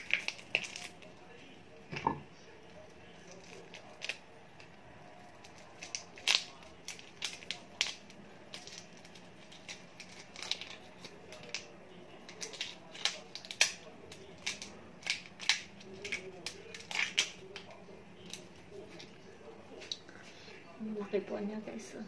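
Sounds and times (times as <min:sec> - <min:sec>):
shrimp shells crackling as peeled: 0:00.0 - 0:01.2, 0:03.1 - 0:19.1.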